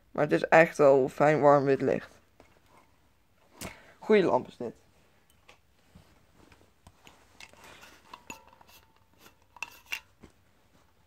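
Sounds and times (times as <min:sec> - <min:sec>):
screw threads rubbing: 0:07.4 - 0:10.1.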